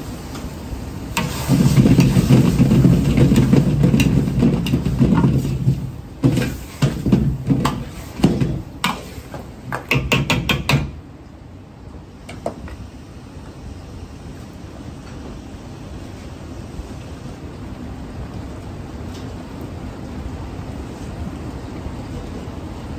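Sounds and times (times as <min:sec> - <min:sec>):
gas burner rumble: 0:00.0 - 0:17.4
wok scraping while tossed: 0:01.1 - 0:10.0.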